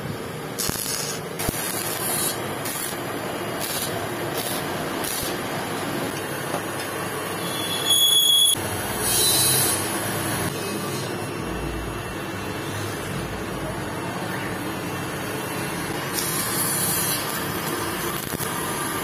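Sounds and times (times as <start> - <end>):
arc welding hiss: 0.1 - 7.5, 15.0 - 19.0.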